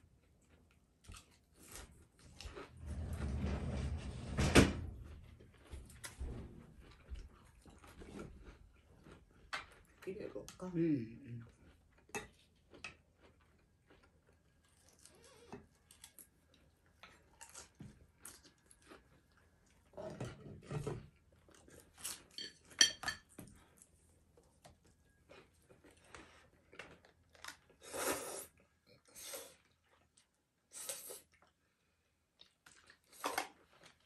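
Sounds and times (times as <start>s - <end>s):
people chewing: 5.3s - 22.4s, 23.4s - 34.0s
chopsticks and bowls clinking: 22.0s - 23.4s.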